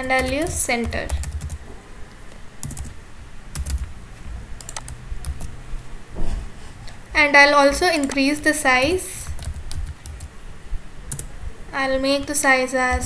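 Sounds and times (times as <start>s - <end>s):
keyboard key clicks: 4.6s - 5.5s.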